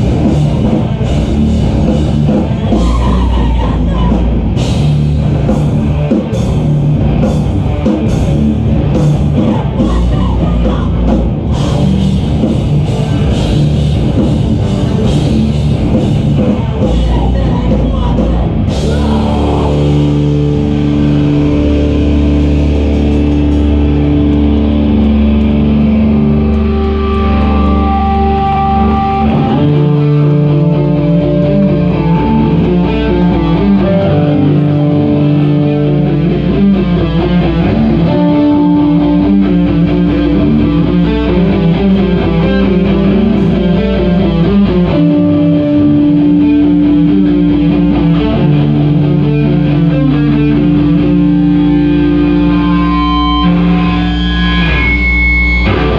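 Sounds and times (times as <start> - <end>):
drums and cymbals: 0.0 - 21.1
distorted guitar chords: 0.0 - 55.9
heavy rock band playing: 0.0 - 55.9.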